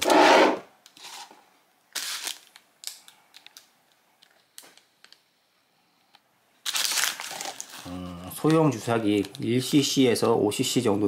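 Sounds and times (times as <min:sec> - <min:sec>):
plastic packs crinkling: 0:01.9 - 0:05.2, 0:06.6 - 0:10.8.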